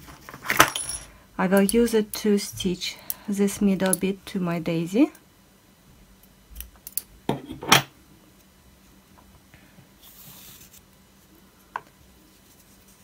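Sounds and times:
soft hiss of yarn: 0:10.0 - 0:10.8.

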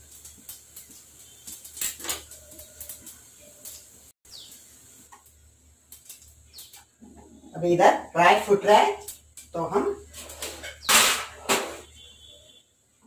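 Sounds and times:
bird chirp: 0:04.3 - 0:04.7, 0:06.4 - 0:07.6.

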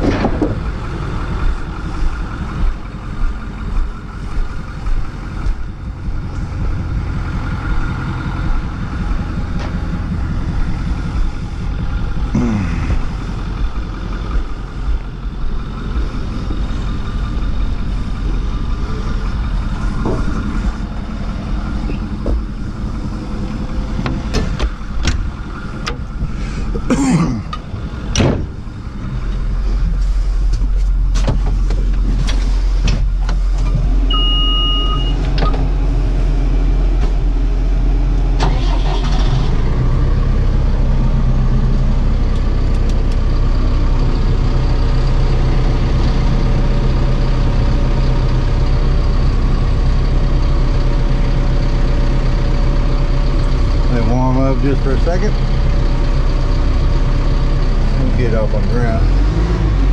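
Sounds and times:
knocks and clatter: 0:00.0 - 0:12.3, 0:19.3 - 0:20.9, 0:21.6 - 0:26.9
diesel engine running: 0:00.0 - 0:59.9
single beep: 0:34.1 - 0:35.6.

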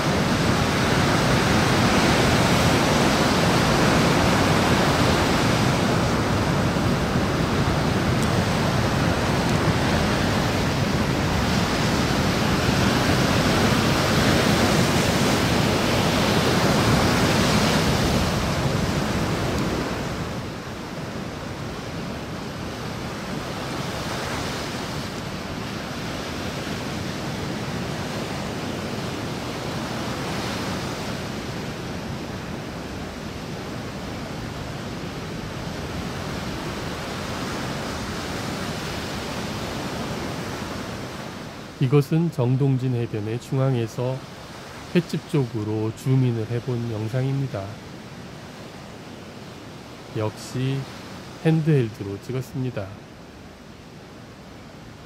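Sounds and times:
waves crashing on rocks: 0:00.0 - 0:55.0.

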